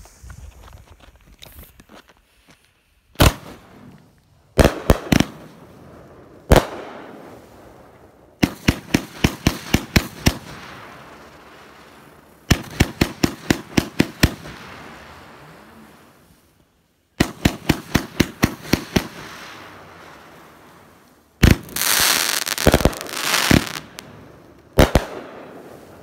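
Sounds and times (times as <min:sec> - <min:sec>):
firework bangs: 0:03.2 - 0:05.7, 0:06.4 - 0:15.8, 0:17.2 - 0:26.0.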